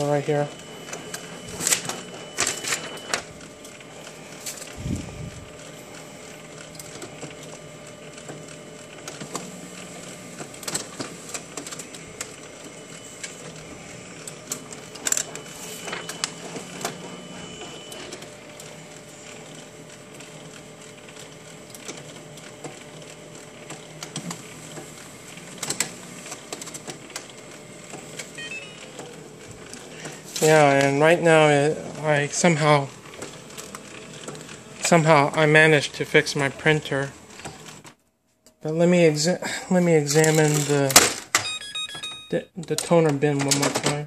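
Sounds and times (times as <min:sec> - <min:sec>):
laser printer whirring: 0:00.0 - 0:38.0
clicks of pages feeding: 0:00.9 - 0:04.8, 0:06.0 - 0:07.6, 0:10.4 - 0:13.6, 0:23.6 - 0:24.9, 0:25.6 - 0:31.0, 0:40.0 - 0:41.4, 0:42.6 - 0:44.0.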